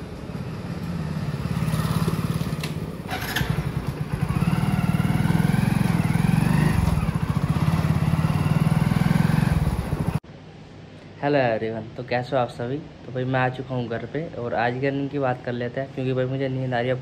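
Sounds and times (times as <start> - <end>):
motorcycle engine pulling away: 0.0 - 10.2.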